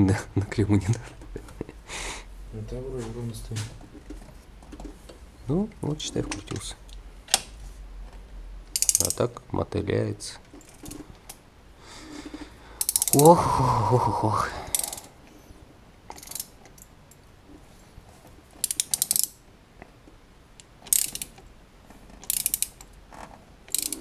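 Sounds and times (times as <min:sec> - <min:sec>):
ratchet wrench clicking: 0:08.7 - 0:09.2, 0:12.8 - 0:13.3, 0:14.7 - 0:15.1, 0:16.1 - 0:16.9, 0:18.6 - 0:19.4, 0:20.9 - 0:21.4, 0:22.2 - 0:22.9, 0:23.7 - 0:24.0
man's drawn-out exclamation: 0:13.2 - 0:14.7.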